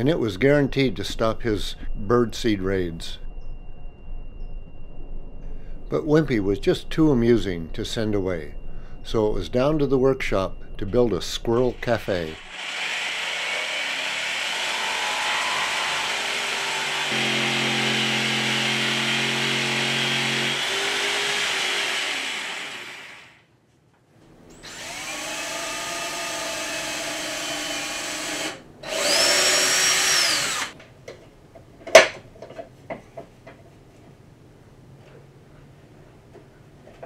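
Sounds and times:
power tools working wood: 12.4s - 23.4s, 24.6s - 30.8s
jigsaw cutting board: 12.5s - 23.4s, 24.7s - 30.7s.

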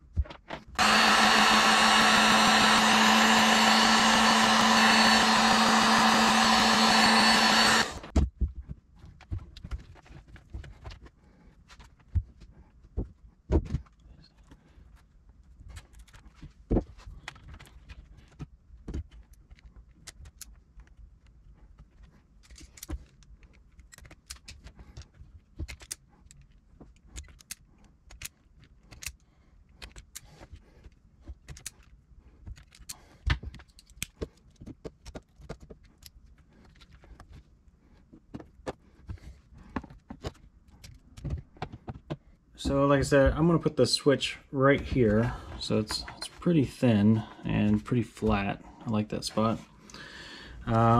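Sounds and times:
wire cutters clicking and snapping: 19.1s - 21.4s, 22.4s - 29.2s, 31.4s - 37.0s.

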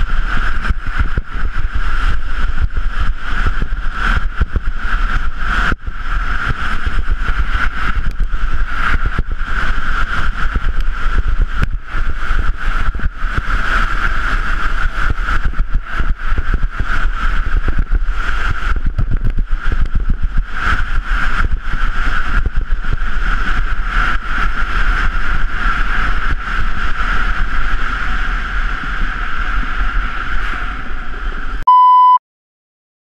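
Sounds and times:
rushing wind: 0.0s - 31.6s
deep rumble: 0.0s - 32.2s
high ringing tone: 31.6s - 32.2s
short electronic beep: 31.6s - 32.2s.

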